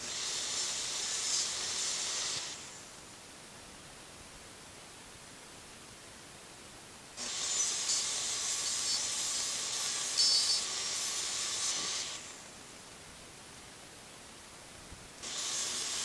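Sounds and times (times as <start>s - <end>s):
table saw ripping wood: 7.2s - 12.3s, 15.2s - 16.0s.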